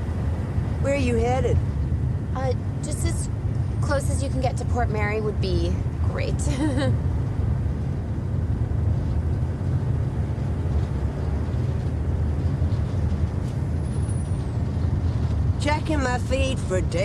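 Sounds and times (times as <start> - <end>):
road noise: 0.0 - 17.0
truck engine rumble: 0.0 - 17.0.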